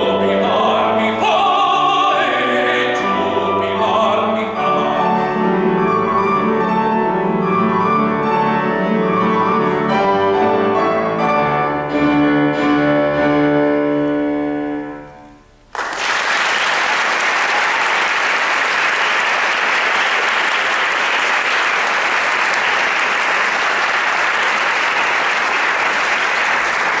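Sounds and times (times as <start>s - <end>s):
audience applause: 15.7s - 27.0s.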